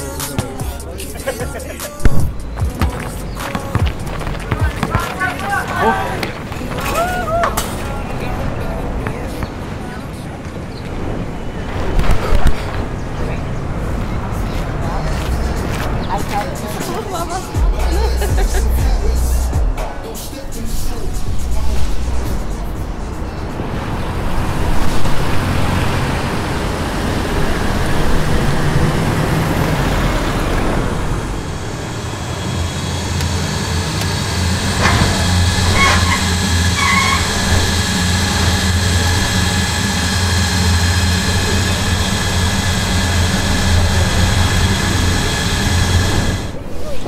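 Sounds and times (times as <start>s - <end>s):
steady rushing noise: 19.4s - 47.0s
low machinery hum: 20.9s - 46.7s
thin high whine: 29.4s - 46.9s.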